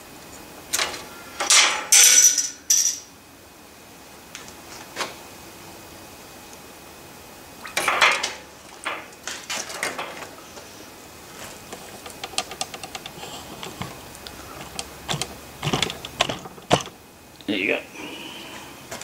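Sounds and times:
metal parts clinking in a can: 1.5s - 3.1s.

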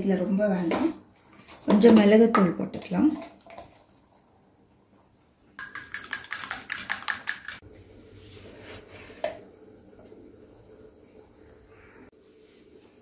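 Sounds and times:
fork beating eggs in a bowl: 5.6s - 7.6s.

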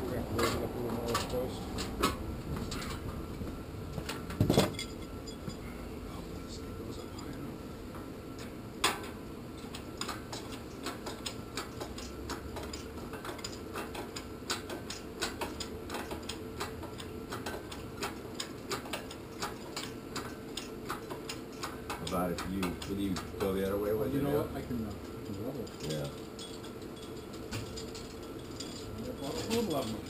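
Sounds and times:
low steady hum: 0.0s - 30.0s
hoist clicking: 8.8s - 23.6s.

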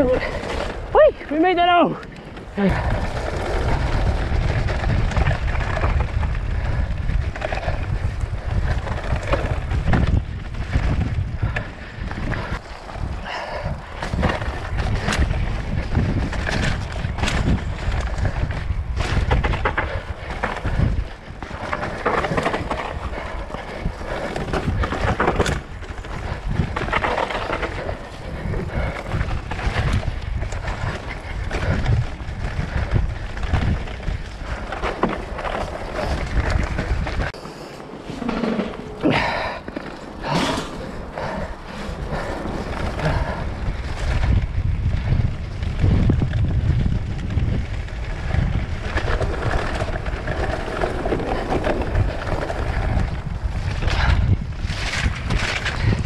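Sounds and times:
bike rattling: 0.0s - 56.0s
bike tyres rolling on dirt: 0.0s - 56.0s
wind rumble on microphone: 0.0s - 56.0s
clicks and knocks over bumps: 2.0s - 56.0s.

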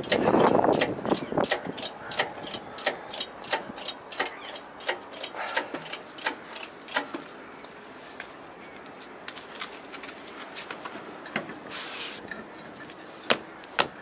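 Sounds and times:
tools clicking and knocking: 0.0s - 7.3s.

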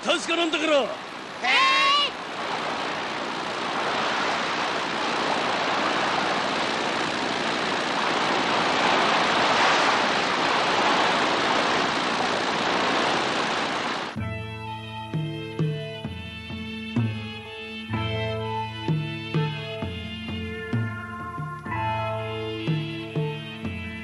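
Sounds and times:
hovercraft speeding over water: 0.0s - 14.3s.

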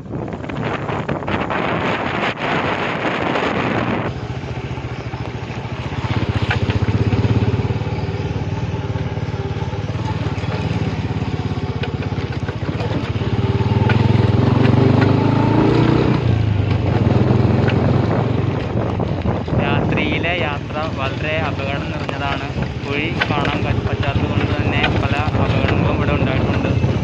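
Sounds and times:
motorcycle engine revving: 0.0s - 27.0s.

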